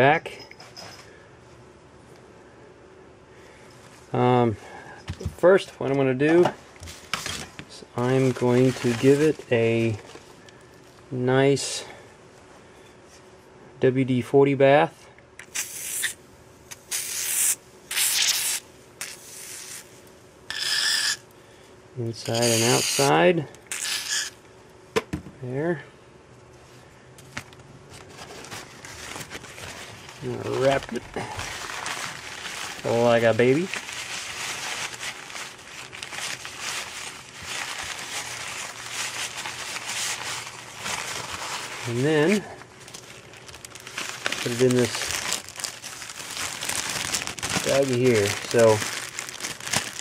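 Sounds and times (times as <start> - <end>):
paper crinkling and rustling: 6.3 - 10.6, 27.2 - 50.0
aerosol spray hissing: 15.6 - 16.1.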